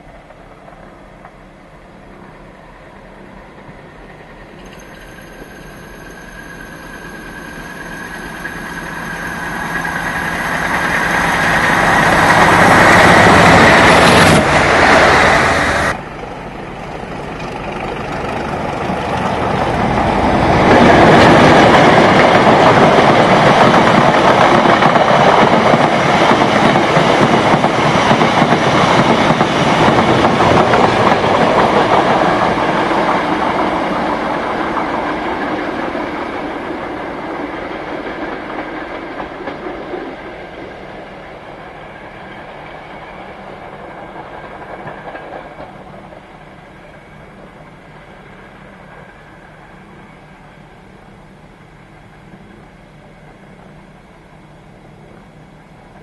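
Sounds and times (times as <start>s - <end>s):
diesel locomotive engine passing: 0.0s - 56.0s
train wheels clattering on rails: 4.0s - 47.7s.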